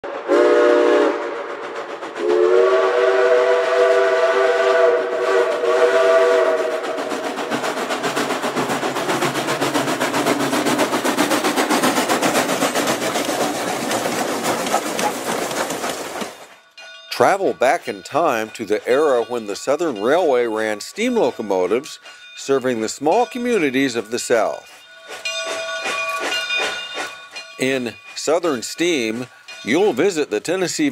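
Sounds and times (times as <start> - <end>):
steam locomotive exhaust chuffing: 0.0 - 30.9
steam whistle blasts: 0.1 - 7.2.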